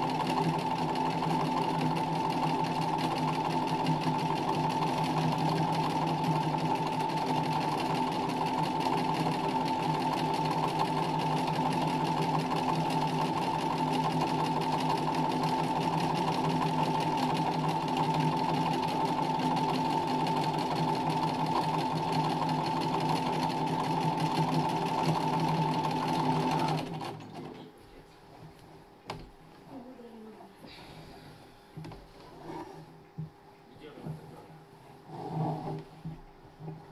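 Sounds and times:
sewing machine stitching: 0.0s - 27.6s.

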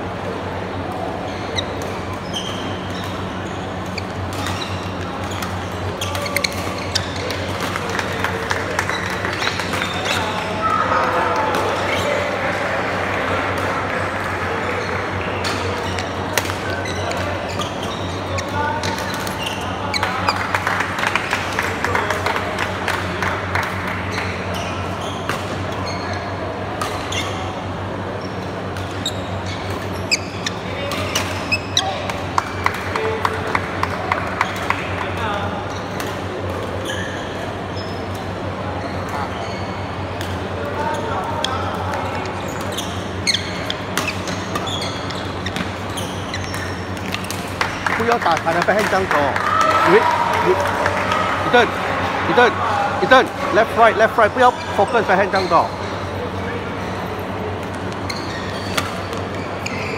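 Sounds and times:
steady background hum: 0.0s - 59.9s
shoes squeaking on court: 0.7s - 12.4s, 14.6s - 20.8s, 24.0s - 51.7s, 52.3s - 59.9s
rackets hitting shuttlecock: 57.5s - 59.8s.

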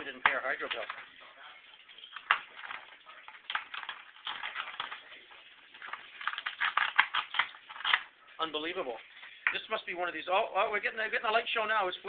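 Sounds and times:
plastic clicks and rattles: 2.0s - 5.0s, 5.8s - 8.1s.

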